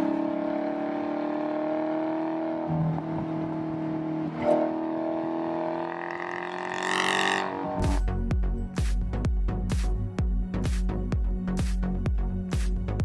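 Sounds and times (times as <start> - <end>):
car engine running: 0.0 - 12.2.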